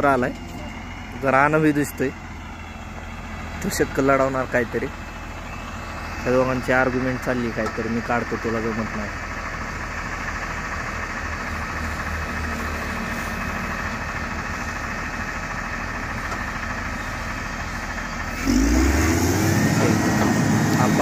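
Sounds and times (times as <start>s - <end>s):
diesel engine of grader running: 0.0s - 21.0s
engine revving up: 18.2s - 21.0s.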